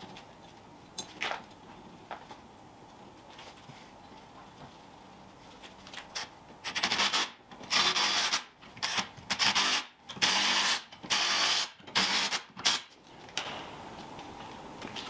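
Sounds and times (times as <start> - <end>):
cordless drill on metal: 6.7 - 12.8.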